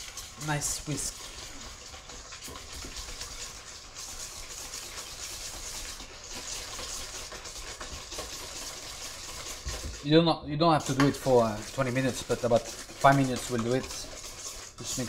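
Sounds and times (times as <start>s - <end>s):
whisk scraping metal bowl: 0.0s - 15.0s.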